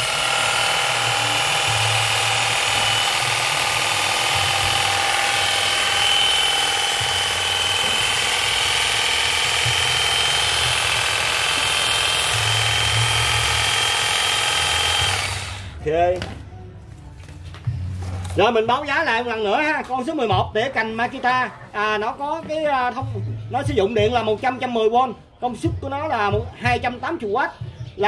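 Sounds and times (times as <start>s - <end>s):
hedge trimmer whining: 0.0s - 15.8s.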